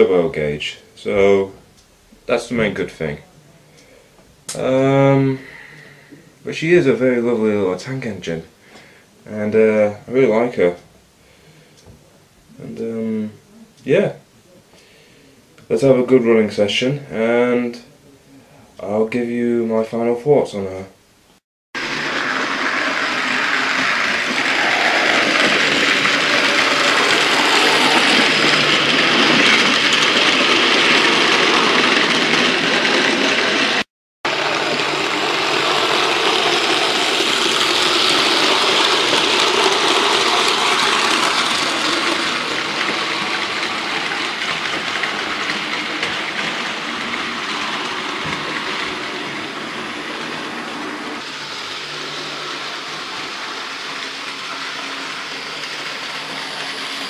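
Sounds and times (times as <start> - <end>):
model train motor whir: 21.8 - 57.0
wheels rumbling on rails: 21.8 - 57.0.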